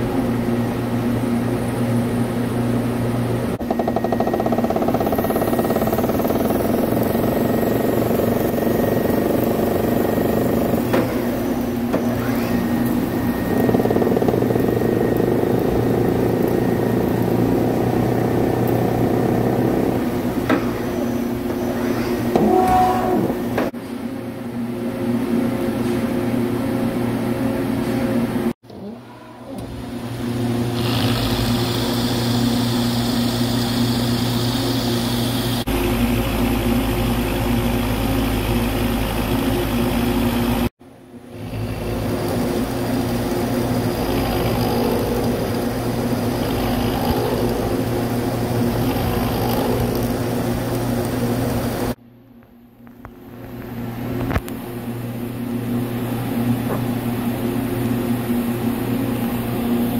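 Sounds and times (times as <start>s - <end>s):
machine hum: 0.0s - 59.9s
metal cutting noise: 3.6s - 23.6s, 30.4s - 37.7s, 41.4s - 52.0s.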